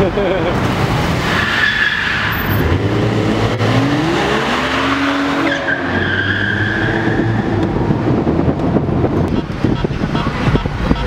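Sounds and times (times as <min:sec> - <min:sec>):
car engine revving: 0:00.6 - 0:09.4
tires squealing: 0:00.6 - 0:11.0.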